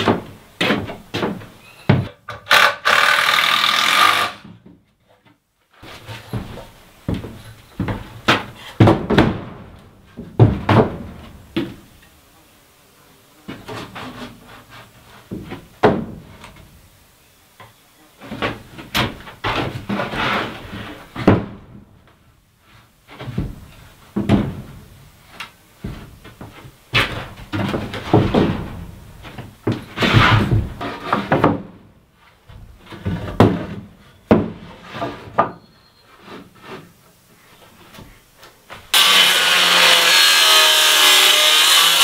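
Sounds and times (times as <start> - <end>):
wooden boards knocking and thudding: 0.0 - 2.8, 5.8 - 11.9, 15.3 - 16.6, 18.2 - 21.8, 23.1 - 25.0, 25.8 - 31.9, 32.5 - 35.6
boards scraping: 18.2 - 21.6, 25.8 - 31.7, 32.3 - 38.1.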